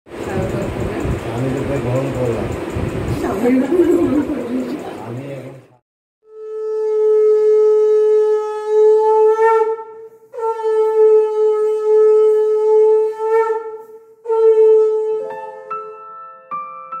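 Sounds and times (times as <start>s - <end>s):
conch shell blasts: 6.3s - 16.0s.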